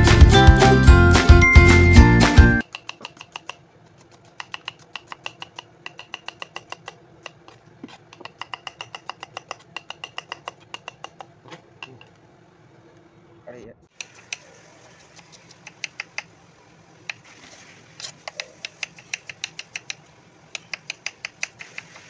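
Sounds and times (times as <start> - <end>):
knife chopping on wooden board: 2.7 - 12.0.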